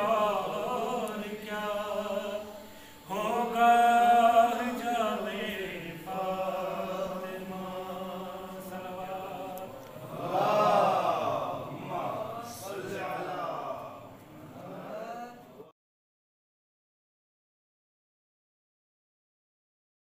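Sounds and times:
man chanting unaccompanied: 0.0 - 15.7.

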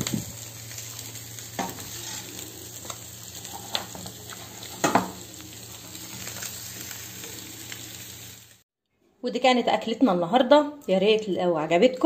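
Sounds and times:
light sizzle: 0.0 - 8.6.

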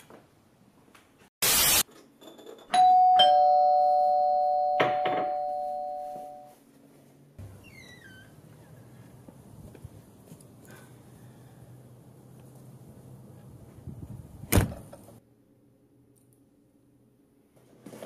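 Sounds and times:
loud burst of hiss: 1.4 - 1.8
two-tone doorbell chime: 2.7 - 6.6.

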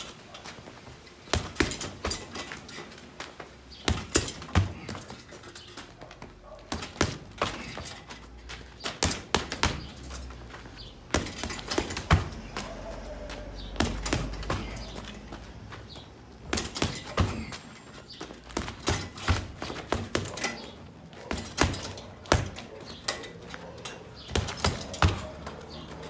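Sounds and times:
fists striking punching bag: 1.3 - 2.4, 3.8 - 5.2, 6.6 - 8.0, 8.9 - 10.0, 11.1 - 12.7, 13.8 - 15.1, 16.5 - 17.6, 18.6 - 20.4, 21.3 - 22.6, 24.3 - 25.2.

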